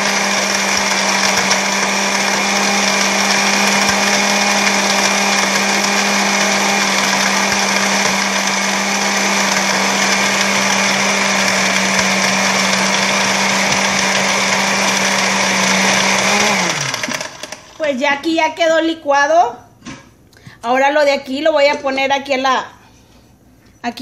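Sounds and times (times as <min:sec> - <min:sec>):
blender running: 0:00.0 - 0:17.9.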